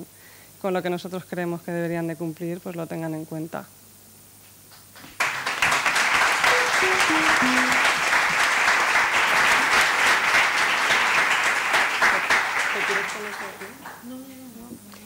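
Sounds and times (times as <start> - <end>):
audience applauding: 4.8 - 14.0
falling run of musical notes: 6.4 - 8.2.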